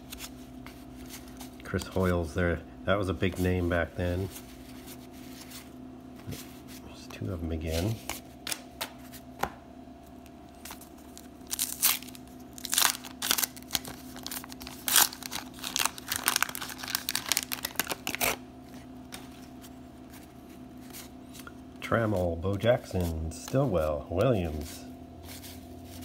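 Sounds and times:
wax paper wrapper tearing: 0:11.1 - 0:18.4.

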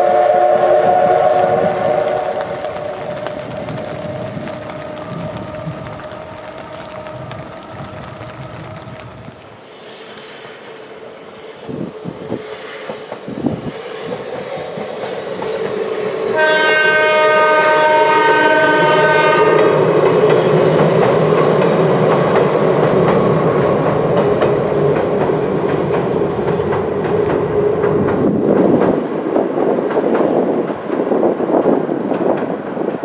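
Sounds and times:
train horn blast: 0:00.0 - 0:09.0, 0:16.3 - 0:20.0
train wheels clattering on bridge: 0:00.8 - 0:10.4, 0:12.3 - 0:33.0.

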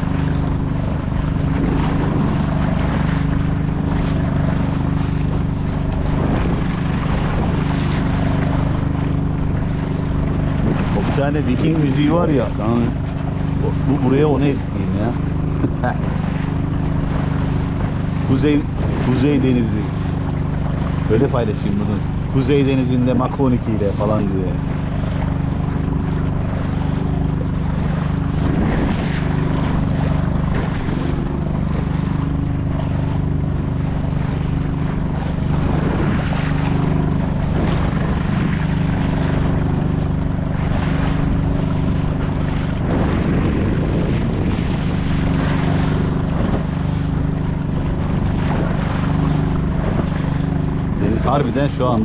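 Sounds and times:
outboard motor running: 0:00.0 - 0:52.0
waves splashing: 0:00.0 - 0:52.0.

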